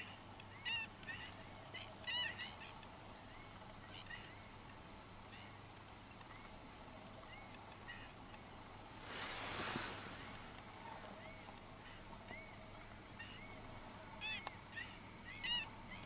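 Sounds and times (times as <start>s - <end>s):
wading birds calling: 9.0s - 16.0s.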